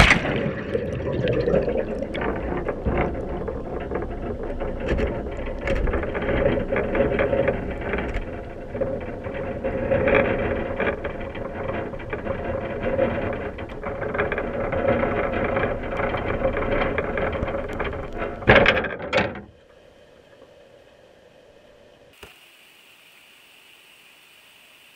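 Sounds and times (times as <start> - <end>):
loud thuds on sea floor: 0.0 - 0.7
water rushing past: 0.0 - 2.5
crab pot rattling underwater: 0.0 - 19.4
faint hiss: 19.6 - 24.9.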